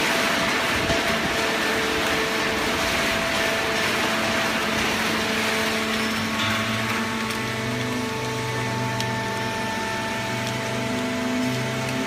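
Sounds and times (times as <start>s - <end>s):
pump motor humming: 0.0s - 12.0s.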